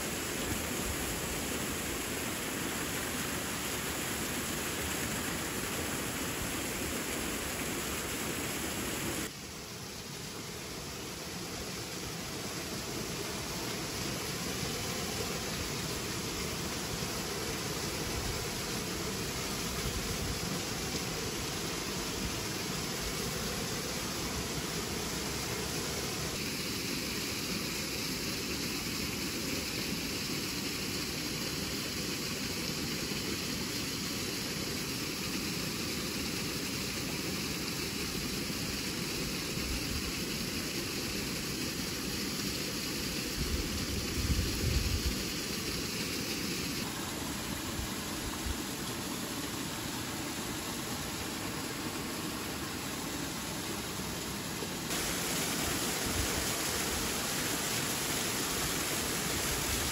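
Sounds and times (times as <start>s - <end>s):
waterfall rushing: 0.0s - 28.0s, 42.5s - 59.9s.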